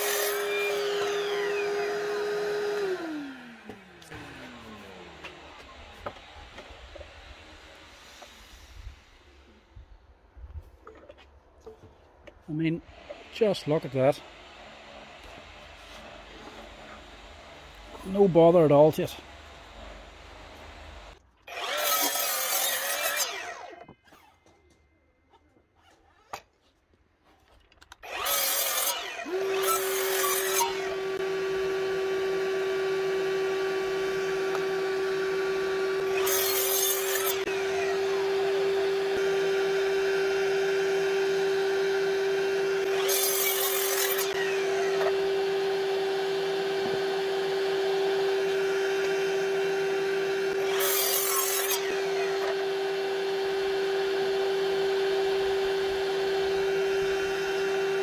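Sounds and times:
mitre saw cutting timber: 0.0s - 9.7s, 12.3s - 24.4s, 27.9s - 58.0s
steady motor whine: 0.0s - 9.7s, 30.6s - 43.3s, 44.3s - 50.8s, 51.8s - 58.0s.

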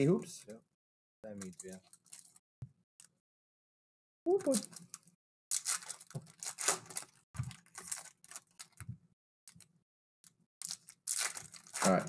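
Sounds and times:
foil wrappers crinkling: 4.4s - 8.8s, 10.6s - 12.0s.

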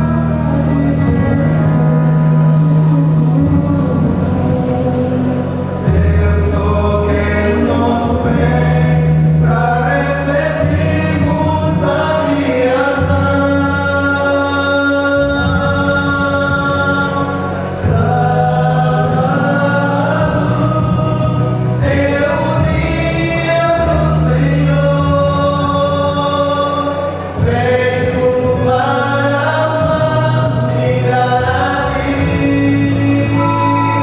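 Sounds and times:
male vocal quartet singing gospel: 0.0s - 34.0s.

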